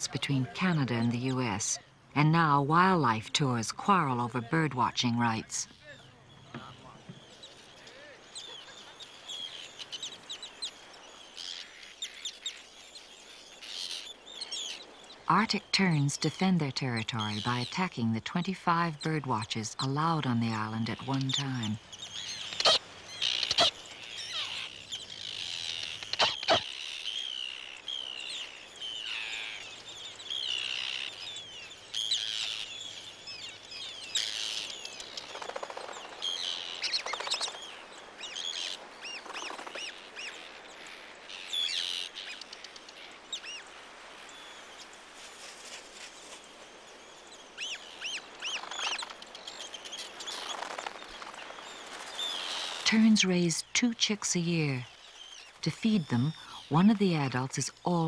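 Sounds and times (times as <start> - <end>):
terns calling: 0.0 - 58.0.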